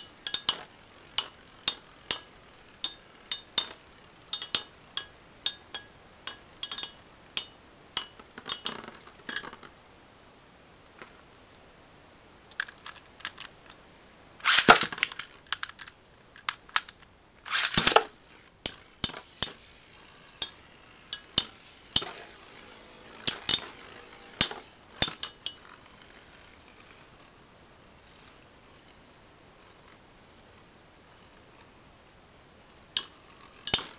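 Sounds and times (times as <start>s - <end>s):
spinning tops clashing: 0.0s - 9.7s, 14.4s - 15.8s, 17.4s - 26.6s, 33.0s - 33.9s.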